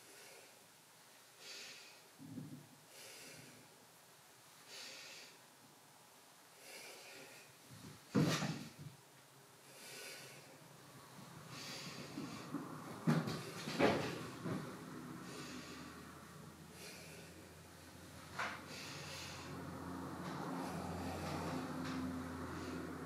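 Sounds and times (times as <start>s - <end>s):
breathing through the nose: 6.6s - 7.6s, 9.6s - 10.6s, 11.4s - 12.8s, 15.2s - 17.5s, 18.4s - 23.0s.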